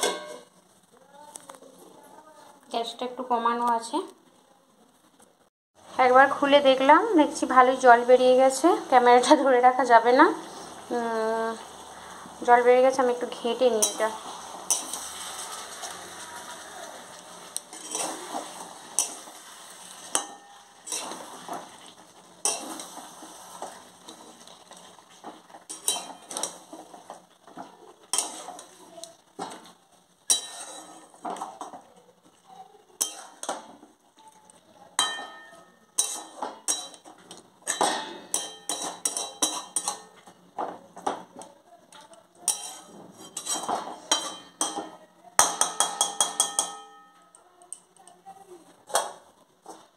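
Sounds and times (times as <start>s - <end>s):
curry sizzling: 0.0s - 49.9s
spatula scraping metal pan: 11.6s - 29.7s, 30.3s - 31.8s, 33.0s - 33.8s, 35.0s - 40.3s, 42.4s - 47.4s.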